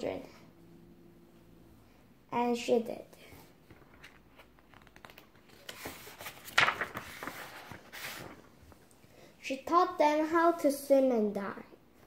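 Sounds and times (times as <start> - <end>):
paper page turning: 3.6 - 8.9.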